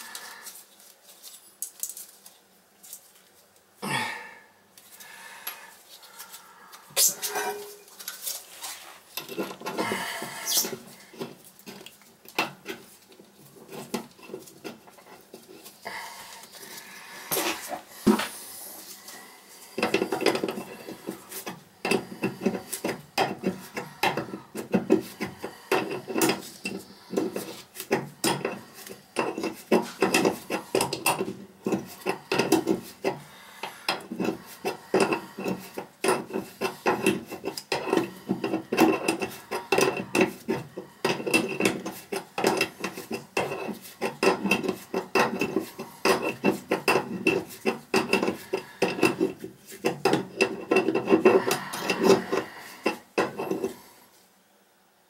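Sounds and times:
hand tool scraping metal valve: 6.9 - 8.2, 9.2 - 15.8, 19.7 - 53.9.

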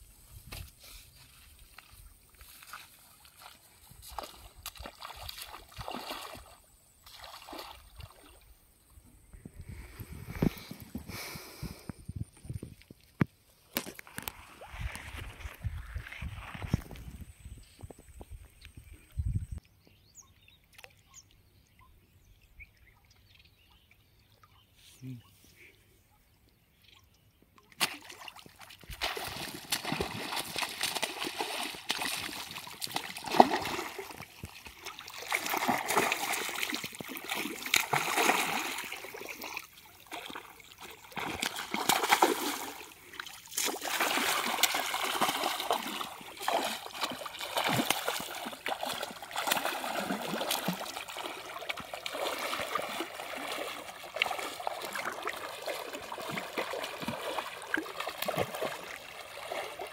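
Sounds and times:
water sloshing around wader: 0.8 - 9.0, 12.5 - 18.2, 27.6 - 59.9
fish splashing at surface: 27.8 - 59.9.

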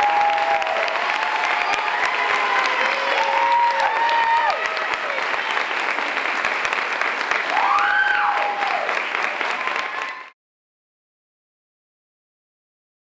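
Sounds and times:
audience applauding: 0.0 - 10.4
people cheering: 0.0 - 10.4.

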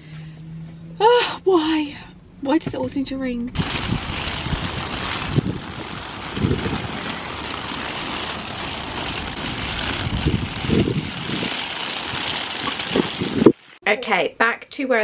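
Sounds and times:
wind buffeting microphone: 2.7 - 13.6.

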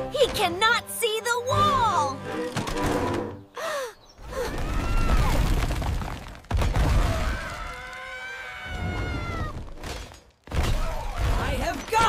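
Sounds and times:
high-pitched cartoon screams: 7.0 - 9.6.

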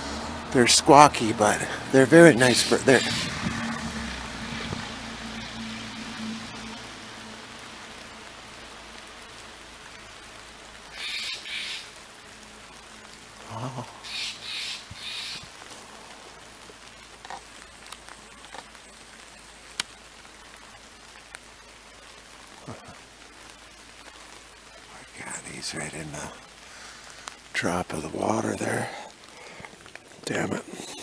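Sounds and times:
rain patter: 0.0 - 31.0
jay squawking: 0.6 - 3.8, 10.9 - 11.9, 13.5 - 15.4.

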